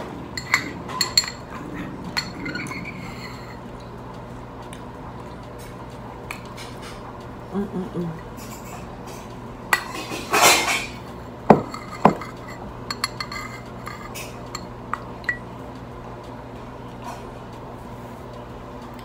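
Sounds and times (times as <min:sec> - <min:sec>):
metal spoon scraping ceramic bowl: 0:09.8 - 0:14.7.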